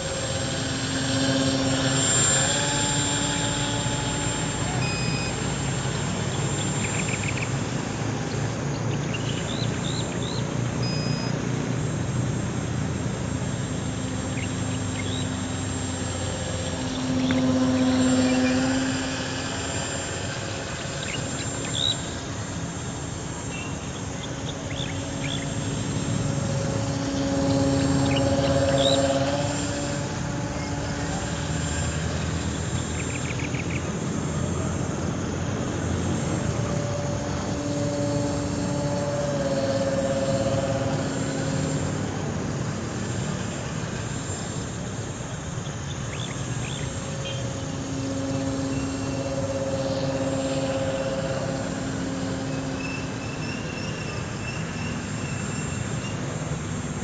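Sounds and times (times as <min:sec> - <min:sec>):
model plane motor buzzing: 0:00.0 - 0:57.0.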